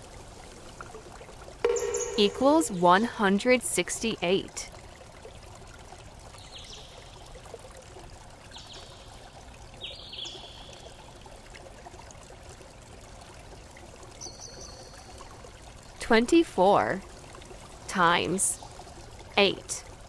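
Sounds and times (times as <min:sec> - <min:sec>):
faint high-pitched chirps: 0:01.7 - 0:02.8.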